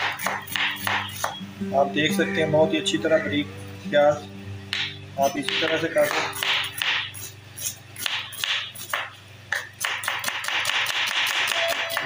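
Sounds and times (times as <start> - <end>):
knife chopping onion on board: 0.0 - 1.4, 4.7 - 12.0.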